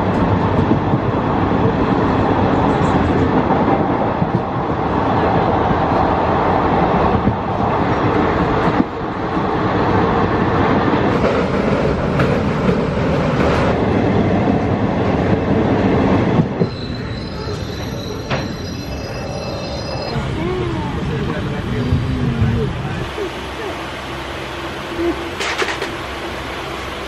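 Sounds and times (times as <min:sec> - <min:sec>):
train wheels rumbling on track: 0:00.0 - 0:27.0
high-pitched tones: 0:16.6 - 0:21.0.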